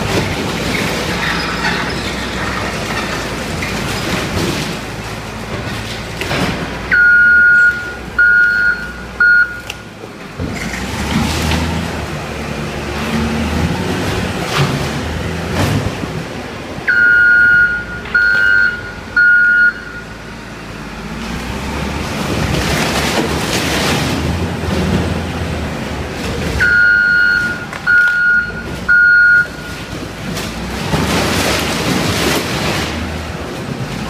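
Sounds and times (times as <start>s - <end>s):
wheel loader running: 0.0s - 34.0s
reversing alarm beeps: 6.9s - 9.7s, 16.9s - 20.2s, 26.6s - 29.8s.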